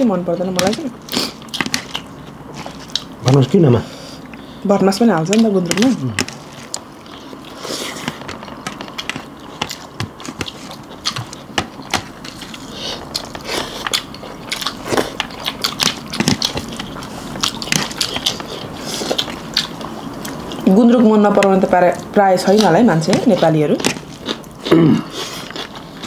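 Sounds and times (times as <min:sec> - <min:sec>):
chewing and lip smacks: 0:06.2 - 0:20.7, 0:21.9 - 0:26.0.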